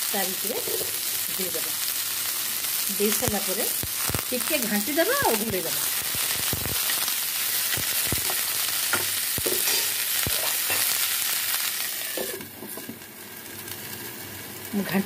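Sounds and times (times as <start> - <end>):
vegetables sizzling in hot oil: 0.0 - 15.0
spatula scraping a pan: 9.4 - 11.0.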